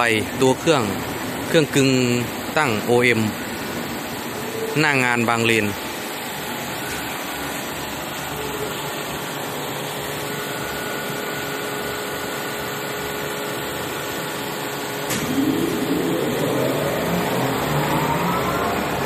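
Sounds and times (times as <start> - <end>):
lathe electric motors humming: 9.8 - 19.0
motor spinning up with whine: 13.1 - 19.0.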